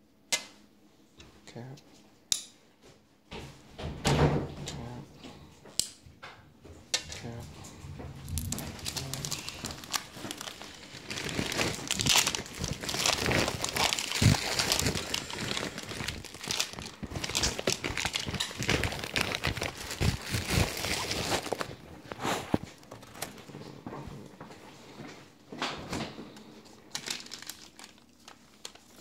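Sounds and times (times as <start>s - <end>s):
packaging crinkling and rustling: 7.1s - 24.4s, 25.6s - 29.0s.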